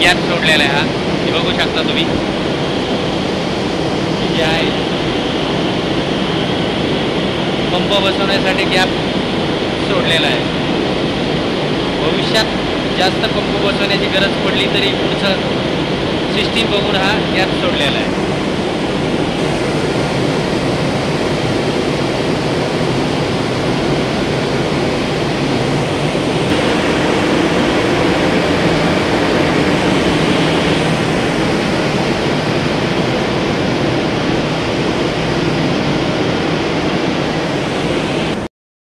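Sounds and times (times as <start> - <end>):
electric pump motors running: 19.2 - 34.9.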